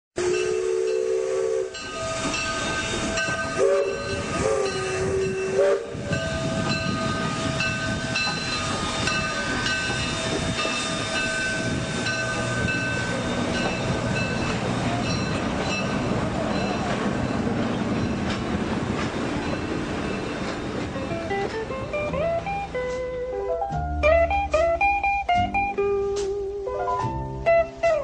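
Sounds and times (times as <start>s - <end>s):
train whistle: 0.2s - 12.0s
train running noise: 0.2s - 28.0s.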